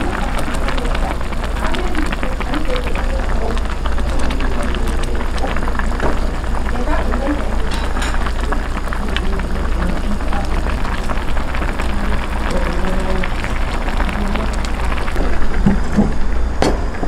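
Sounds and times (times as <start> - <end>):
indistinct voices din: 0.0 - 16.2
clinks of dishes and utensils: 7.7 - 8.4.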